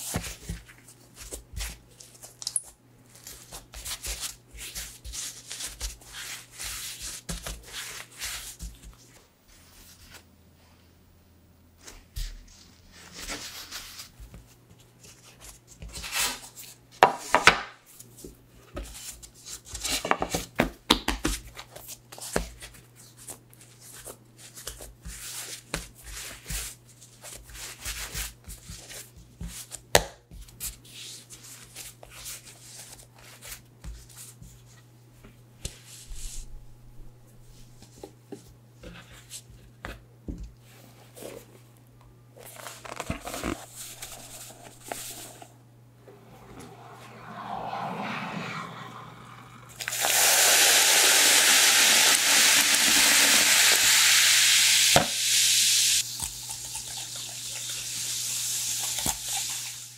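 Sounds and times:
dough rubbing and patting on wood: 3.1s - 10.3s, 17.0s - 34.8s.

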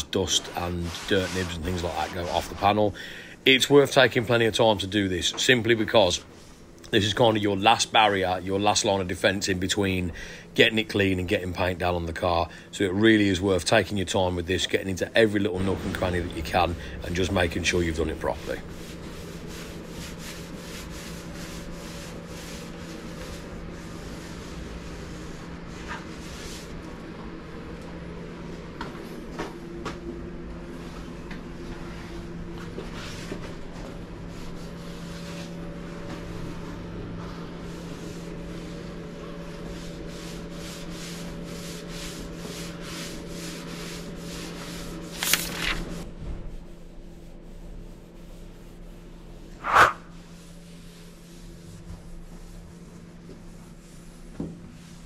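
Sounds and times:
steady low hum: 0.0s - 55.0s
cloth rubbing on car panel: 0.3s - 2.7s, 17.8s - 26.8s, 45.9s - 55.0s.

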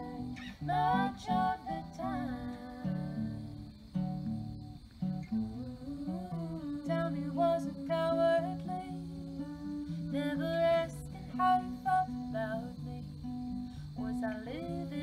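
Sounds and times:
women singing in harmony: 0.0s - 3.7s, 5.4s - 13.2s, 14.0s - 15.0s
acoustic guitar: 0.0s - 15.0s.

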